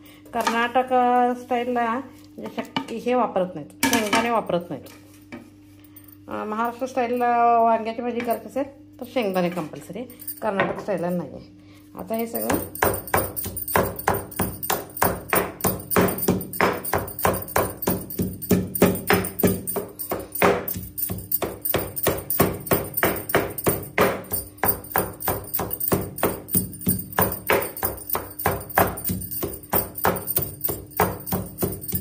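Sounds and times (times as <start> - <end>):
pestle pounding in stone mortar: 12.4 - 32.0.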